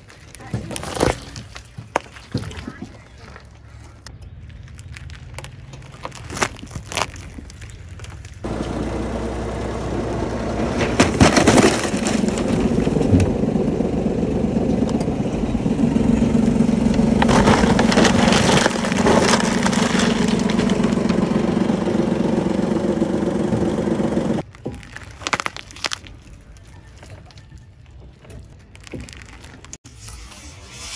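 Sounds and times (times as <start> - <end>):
cardboard box crushing: 4.8 - 8.4, 11.0 - 12.6, 17.2 - 21.1, 24.4 - 27.2
small car engine running: 8.4 - 24.4.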